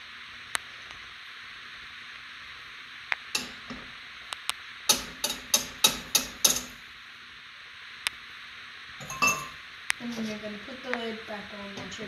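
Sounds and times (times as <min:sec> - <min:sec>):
metal whisk clinking on pan rim: 0:09.0 - 0:09.6.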